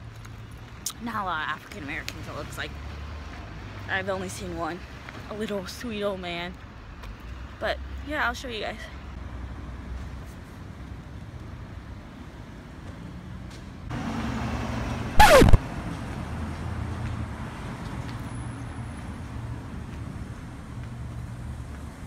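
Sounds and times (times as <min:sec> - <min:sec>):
street traffic: 0:00.0 - 0:22.0
loud sound falling in pitch: 0:15.2 - 0:15.6.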